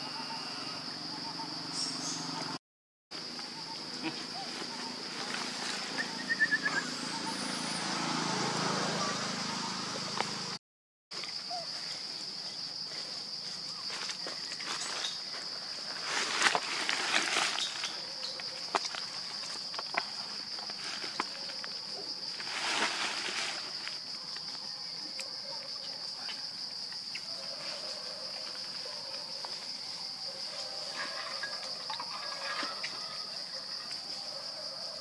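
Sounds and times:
high-pitched insect drone: 0.0s - 2.6s.

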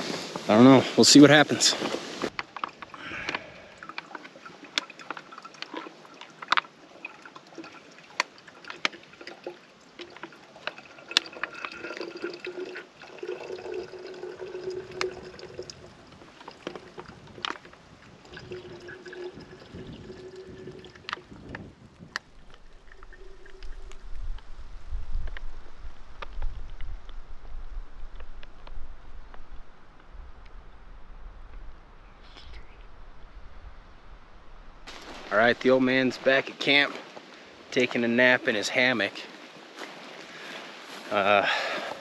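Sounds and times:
water pouring into container: 2.4s - 21.6s, 22.2s - 24.2s.

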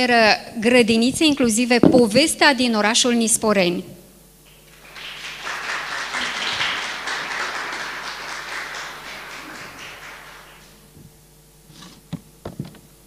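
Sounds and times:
audience applauding: 4.5s - 10.8s.

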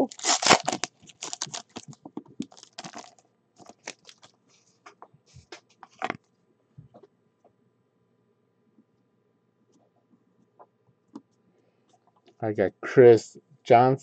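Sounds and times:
card wrapper crinkling: 0.0s - 4.4s.

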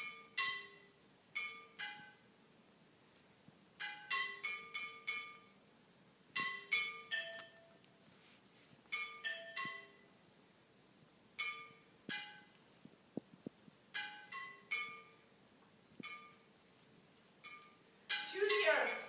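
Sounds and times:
clay flowerpots struck ringing: 3.8s - 5.6s, 8.9s - 10.1s, 11.4s - 12.5s, 14.0s - 15.3s.

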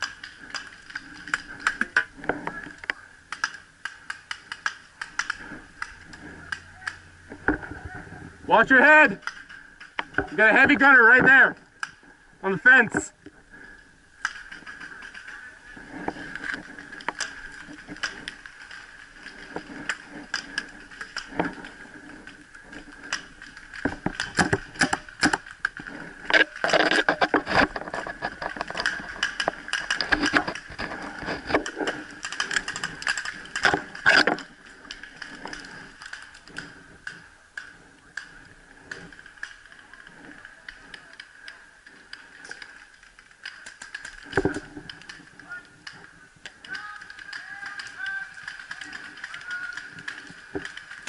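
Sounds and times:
paintball markers firing: 46.5s - 51.0s.

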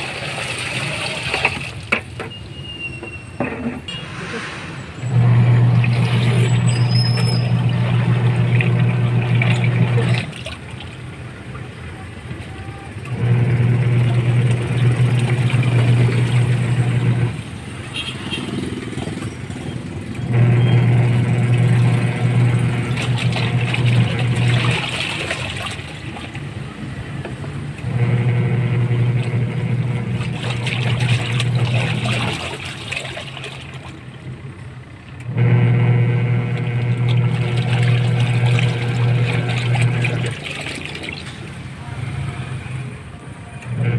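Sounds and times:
water sloshing: 3.8s - 17.5s, 18.6s - 27.7s, 29.2s - 34.4s, 36.5s - 41.8s
washing machine motor humming: 5.0s - 42.2s, 43.6s - 43.9s.

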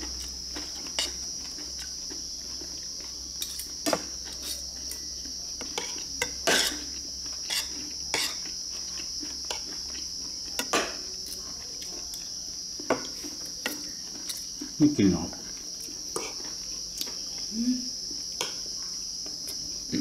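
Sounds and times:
crickets chirring: 0.0s - 20.0s
cutlery clinking against bowls: 0.6s - 1.2s, 3.4s - 11.4s, 12.8s - 14.5s.

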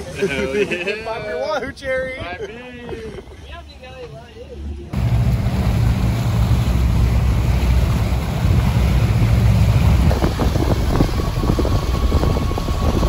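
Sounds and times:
water rushing past boat: 4.9s - 13.0s
outboard motor running: 5.0s - 13.0s
wind buffeting microphone: 5.0s - 13.0s.

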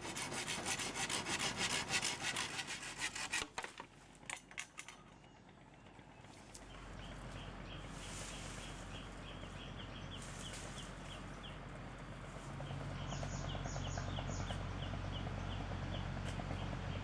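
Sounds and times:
low steady hum: 2.1s - 17.0s
birds chirping: 5.0s - 17.0s.

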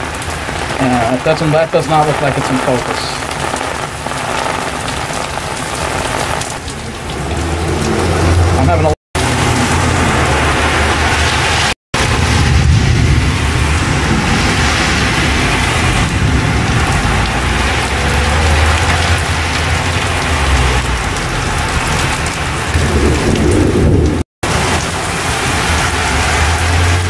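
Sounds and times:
heavy rain on pavement: 0.0s - 27.0s
low thunder rumble: 9.2s - 24.7s.

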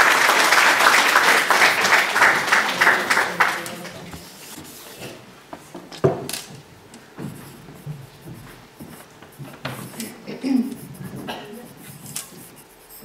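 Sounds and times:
pencil scratching on paper: 7.2s - 13.0s.

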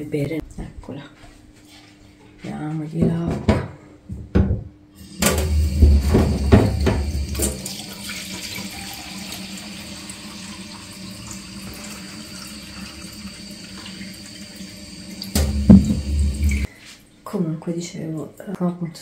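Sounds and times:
loud bump: 5.2s - 7.5s, 15.4s - 16.7s
tap running into metal sink: 5.2s - 8.7s, 15.1s - 16.7s.

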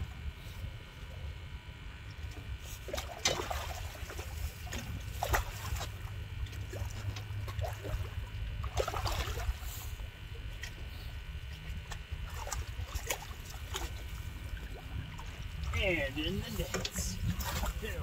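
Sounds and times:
steady low rumble: 0.0s - 18.0s
fish splashing in water: 2.3s - 15.9s.

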